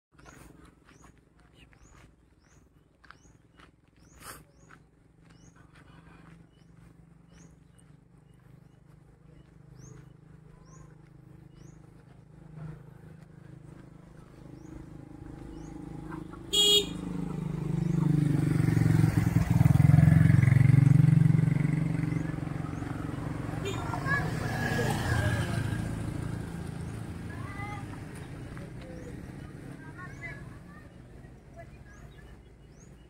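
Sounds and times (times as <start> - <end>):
motorcycle engine passing: 3.2 - 33.0
horn toot: 16.5 - 17.2.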